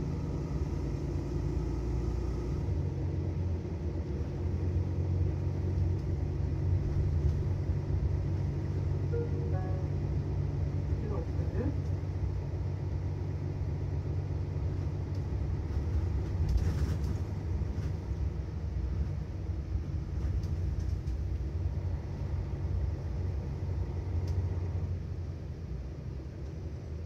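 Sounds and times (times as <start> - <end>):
bus engine rumbling: 0.0 - 27.0.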